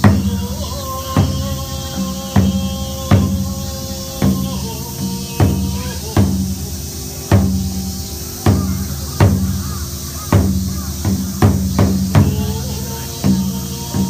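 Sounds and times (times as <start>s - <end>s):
taiko drum booms: 0.0s - 14.0s.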